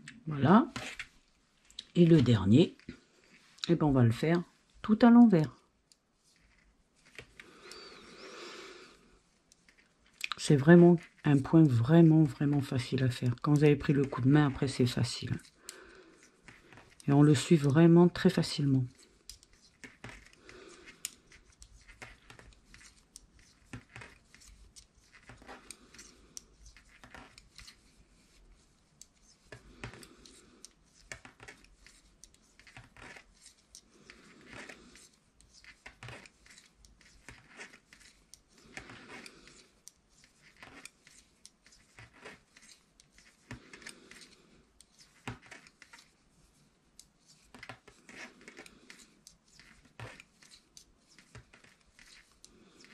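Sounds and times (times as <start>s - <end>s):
knitting needles clicking: 9.5s - 15.9s.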